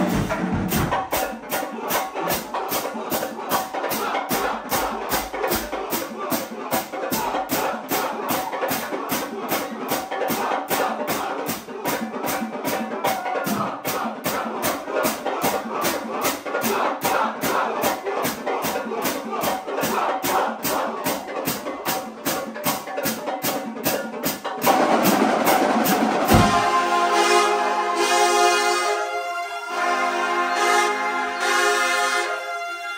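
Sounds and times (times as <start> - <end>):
marching band brass playing: 0.0 - 12.8, 24.5 - 32.9
steady drum beat: 0.0 - 27.3.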